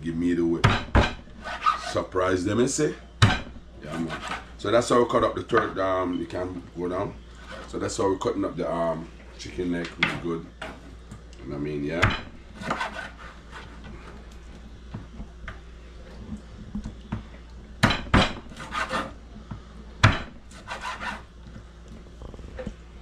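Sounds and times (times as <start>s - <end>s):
knife chopping onto wooden board: 0.6s - 1.2s, 3.2s - 3.6s, 12.0s - 13.0s, 17.8s - 19.0s, 20.0s - 21.0s
knife scraping raw meat: 1.4s - 2.0s, 18.5s - 19.2s, 20.5s - 21.3s.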